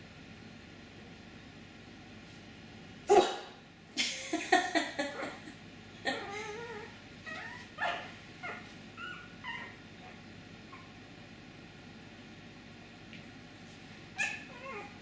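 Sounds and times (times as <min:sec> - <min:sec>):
puppy whining: 0:06.0 - 0:11.0, 0:14.2 - 0:15.0
puppy yelping: 0:06.1 - 0:11.0, 0:14.2 - 0:15.0.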